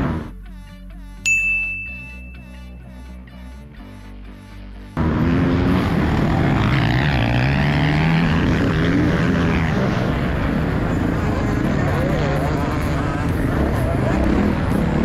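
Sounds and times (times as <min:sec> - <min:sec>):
motocross bike engine accelerating: 0:05.0 - 0:15.0.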